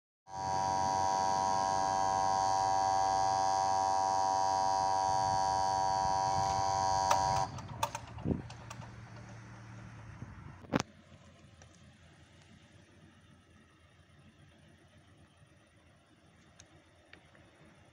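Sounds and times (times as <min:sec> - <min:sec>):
level crossing warning buzzer: 0:00.3 - 0:09.6
sharp clicks: 0:06.4 - 0:09.6.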